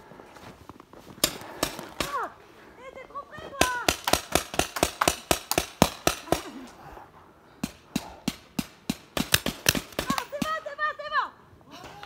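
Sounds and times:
paintball markers firing: 3.6 - 6.5.

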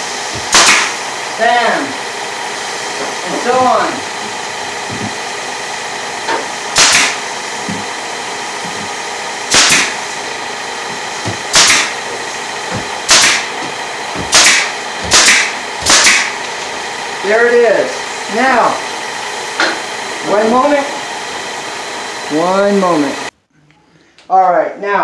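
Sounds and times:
steady hum: 0.0 - 24.1
staple gun shots with hiss: 0.4 - 1.0, 6.8 - 7.2, 9.5 - 10.0, 11.5 - 12.0, 13.1 - 13.5, 14.3 - 16.4.

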